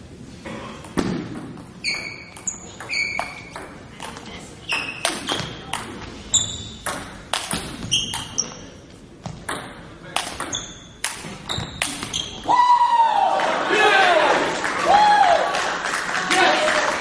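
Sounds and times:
sneakers squeaking on wooden floor: 1.8 - 3.8, 4.6 - 9.6, 10.3 - 12.5.

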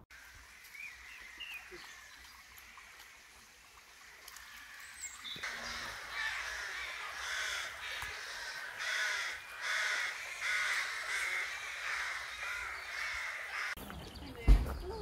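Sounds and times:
rooks cawing: 5.4 - 13.8.

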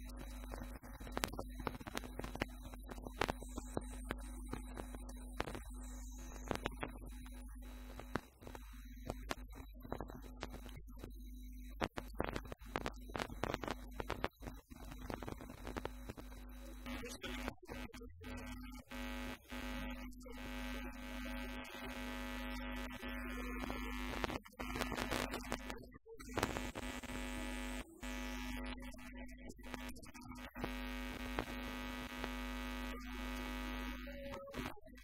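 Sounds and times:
electrical buzz: 18.3 - 25.6, 30.5 - 34.0.

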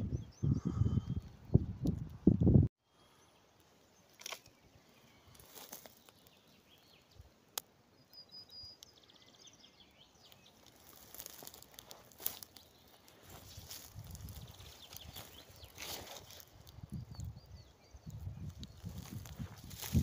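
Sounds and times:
dry plant litter crackling: 5.3 - 6.5, 10.3 - 17.2, 18.2 - 20.0.

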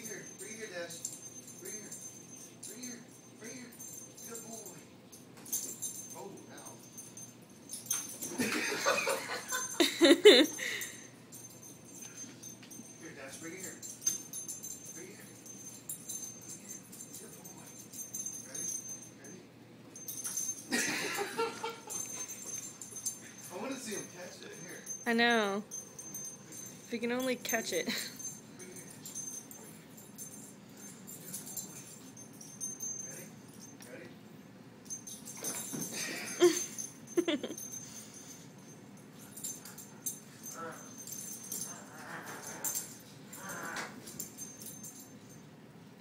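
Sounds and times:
dog collar tags jingling: 0.0 - 19.4, 20.0 - 45.5.

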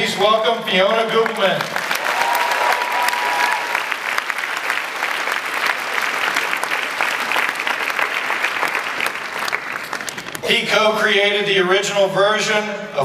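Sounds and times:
audience applauding: 1.1 - 10.5.

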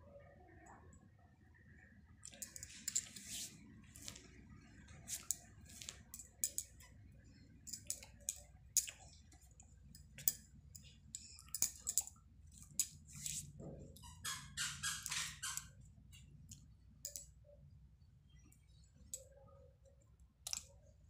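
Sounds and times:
low steady hum: 0.0 - 21.0
hands rubbing and tapping: 2.4 - 4.2.

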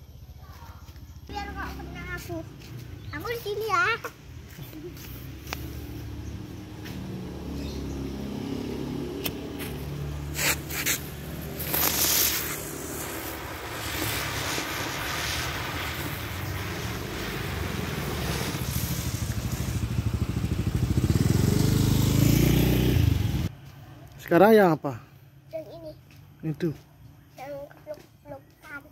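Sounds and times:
firework sparks hissing: 1.3 - 8.4, 9.0 - 23.4
engine hum: 4.1 - 23.8
firework burst: 9.2 - 22.0.

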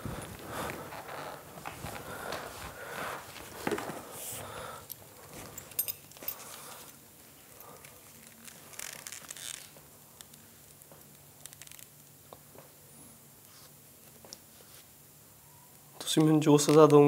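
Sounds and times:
leather and cloth rustling: 0.0 - 4.5
metal buckle clinking: 4.9 - 6.7.

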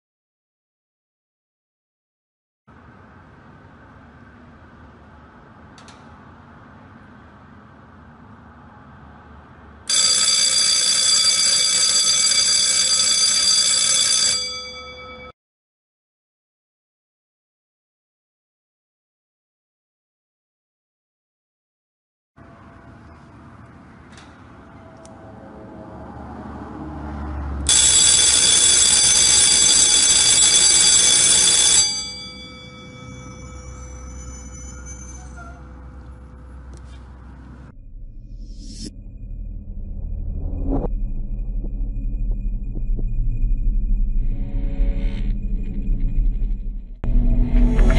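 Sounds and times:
electric alarm bell ringing: 9.9 - 15.3, 27.7 - 36.4.

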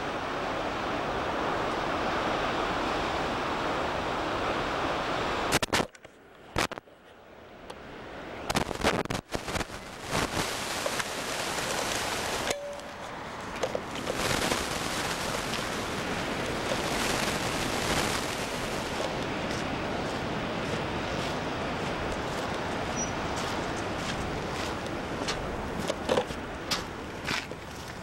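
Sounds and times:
surf: 0.0 - 28.0
wind: 0.0 - 28.0
camera handling knocks and rustles: 25.8 - 26.3.

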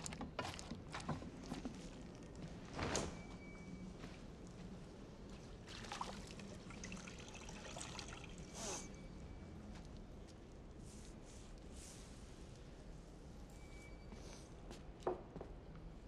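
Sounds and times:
short water splashes: 5.7 - 8.3
water trickling and dripping: 5.7 - 8.6.

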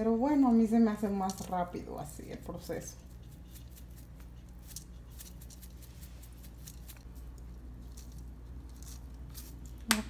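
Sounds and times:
low steady hum: 0.0 - 10.0
seasoning shaken into cup: 2.7 - 9.8.

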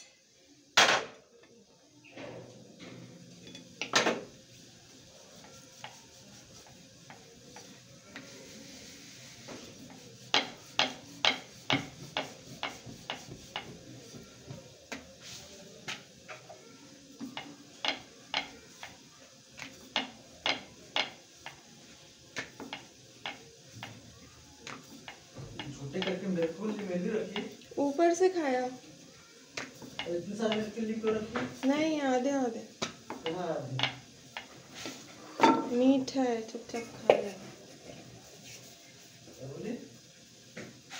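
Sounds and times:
rolling pin rolling dough: 3.4 - 40.9
wooden board knocking on counter: 10.3 - 13.8.

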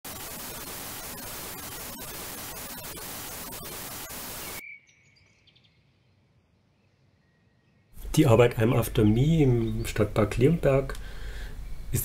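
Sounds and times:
tv static hiss: 0.0 - 4.6.

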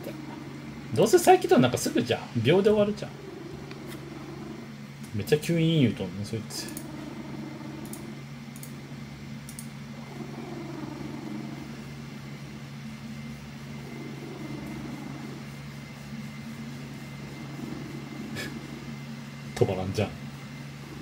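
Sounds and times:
computer fan hum: 0.0 - 21.0
cat purring loudly: 2.7 - 4.7, 6.8 - 8.2, 9.9 - 11.8, 13.7 - 15.5, 16.8 - 19.0.

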